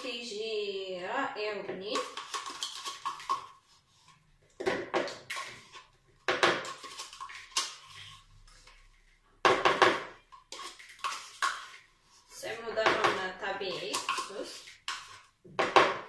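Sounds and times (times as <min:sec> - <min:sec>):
spoon scraping plastic cup: 0:01.7 - 0:04.3, 0:05.1 - 0:09.1, 0:10.1 - 0:15.4.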